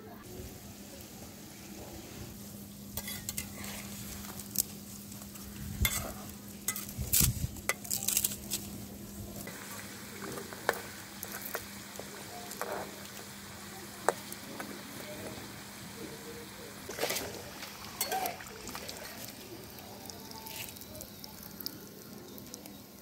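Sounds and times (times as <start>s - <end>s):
food sizzling in hot oil: 0.2s - 23.0s
metal spatula scraping pan: 3.0s - 4.0s, 5.8s - 7.0s.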